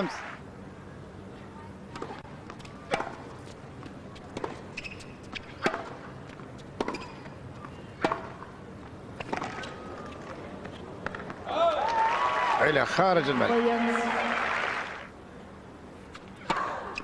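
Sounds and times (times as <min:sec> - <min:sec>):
tennis ball racket hits: 0:02.0 - 0:03.3, 0:08.0 - 0:08.4.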